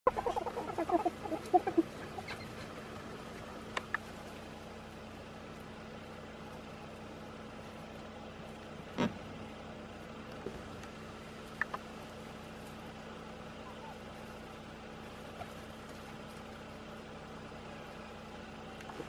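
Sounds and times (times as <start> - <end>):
clucking animal calls: 0.0 - 4.8, 8.8 - 9.4, 10.5 - 16.8.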